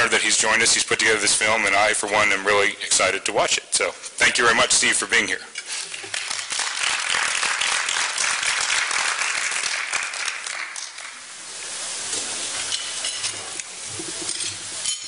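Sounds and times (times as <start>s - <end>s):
room noise: 0.0s - 15.0s
audience applauding: 5.8s - 11.3s.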